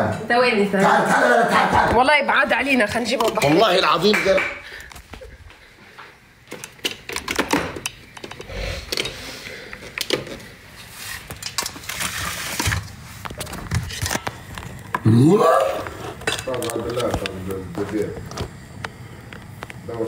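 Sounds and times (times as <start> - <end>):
utensils and cookware clicking: 6.5 - 10.5, 15.8 - 17.5.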